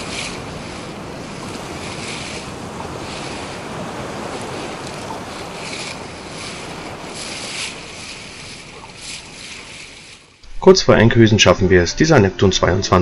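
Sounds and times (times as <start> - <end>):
wind buffeting microphone: 0.0 - 10.2
water rushing along boat hull: 0.0 - 10.6.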